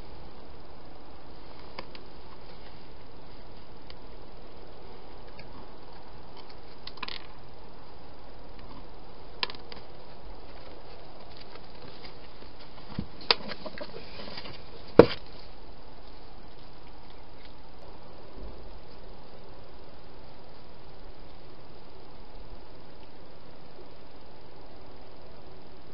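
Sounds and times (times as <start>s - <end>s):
steady hiss: 0.0s - 25.9s
animal bumping plastic box: 15.0s - 15.3s.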